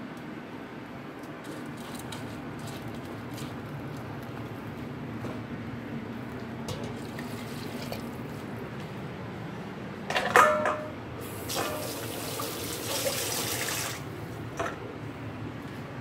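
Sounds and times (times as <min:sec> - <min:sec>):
steel bowl clanking against sink: 0:10.1 - 0:10.9, 0:11.5 - 0:13.8
tap water running into sink: 0:11.4 - 0:14.0.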